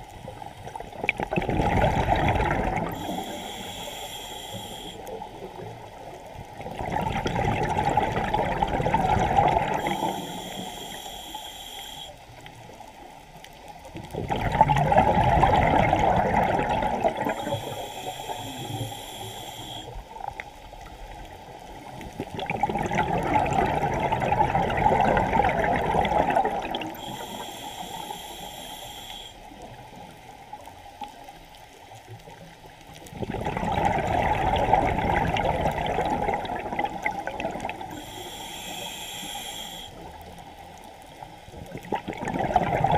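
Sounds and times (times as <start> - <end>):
exhaust bubbles underwater: 0.0 - 12.1, 13.9 - 20.9, 21.8 - 30.7, 33.0 - 39.0, 41.5 - 42.9
regulator inhale hiss: 2.8 - 6.1, 9.7 - 12.4, 17.1 - 20.1, 26.8 - 29.7, 37.8 - 40.4.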